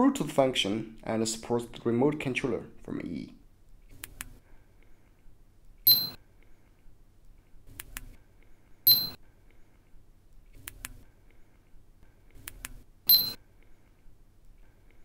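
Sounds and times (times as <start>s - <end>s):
short electronic ringing tone: 5.9s - 6.2s, 8.9s - 9.2s, 13.1s - 13.4s.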